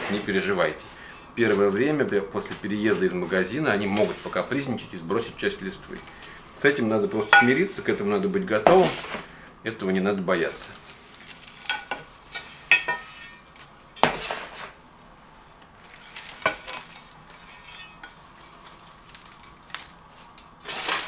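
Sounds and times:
potting soil scraping and pouring: 0.0 - 9.3, 14.1 - 14.8, 15.8 - 21.0.

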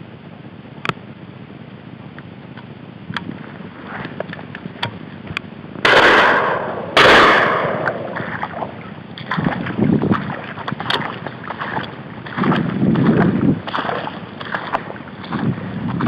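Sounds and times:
footsteps through wet grass and water: 3.3 - 4.6, 7.3 - 16.0
shotgun shots with echo: 5.8 - 8.4.

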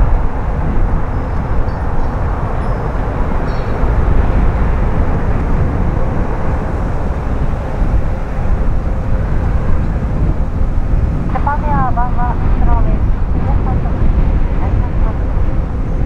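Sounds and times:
jet engine rumble: 0.0 - 16.0.

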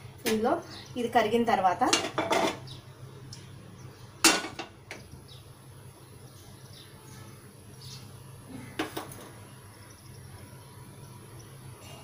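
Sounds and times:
low steady hum: 0.0 - 12.0
frying pan clanking: 1.9 - 2.7, 4.2 - 4.8.

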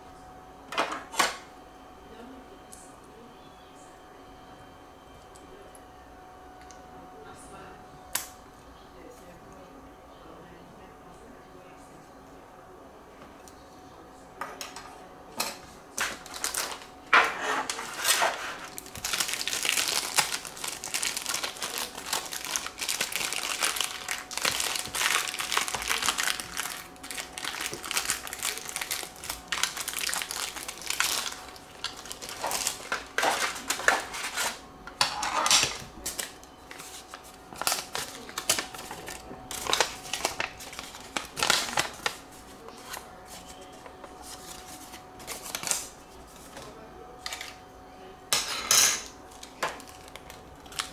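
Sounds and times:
plastic bag crinkling: 16.0 - 16.9, 17.6 - 34.6, 35.6 - 46.5, 49.3 - 50.9
paper sheet rustling: 16.2 - 26.8, 36.0 - 46.7.

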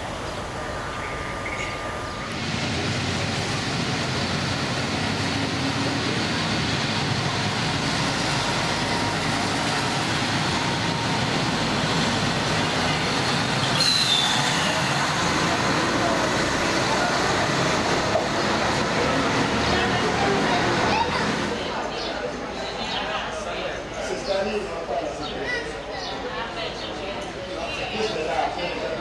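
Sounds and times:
train engine and wheels rumbling: 0.0 - 29.0
high wheel squeal: 12.9 - 15.2.

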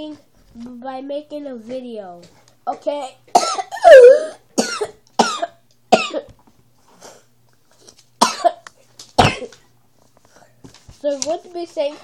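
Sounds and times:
young child coughing: 2.7 - 6.3, 8.2 - 8.6, 9.2 - 9.6.

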